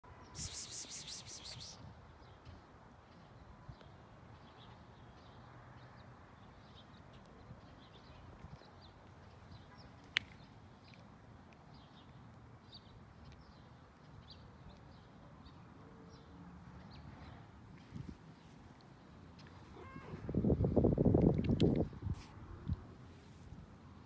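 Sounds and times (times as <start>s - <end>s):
cat meowing: 19.7s - 20.3s.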